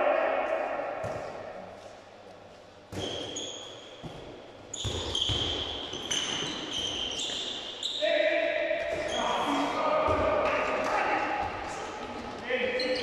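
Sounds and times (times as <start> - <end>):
ball bouncing on hall floor: 0.5 - 1.9, 2.9 - 7.7, 8.7 - 13.0
shoes squeaking on court: 2.9 - 8.0, 8.9 - 9.6, 12.7 - 13.0.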